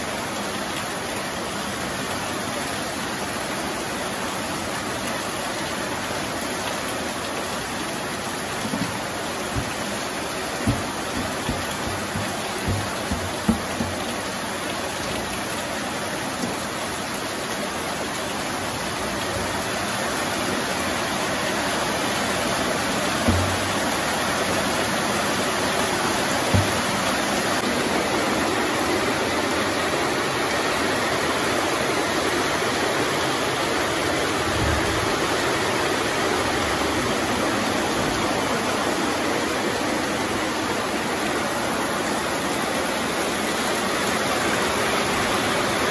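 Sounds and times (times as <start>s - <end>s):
heavy rain pouring: 0.0s - 45.9s
dull knocks: 8.6s - 14.4s, 23.2s - 24.0s, 26.4s - 27.6s.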